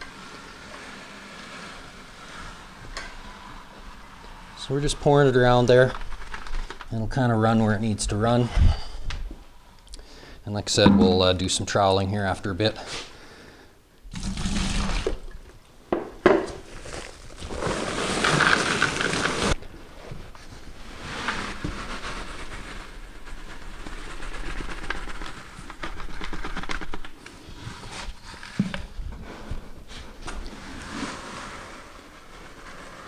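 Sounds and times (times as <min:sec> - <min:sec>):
sharp knock: 0:10.8 - 0:11.4
wet concrete pouring from pail: 0:14.1 - 0:15.4, 0:16.7 - 0:19.6.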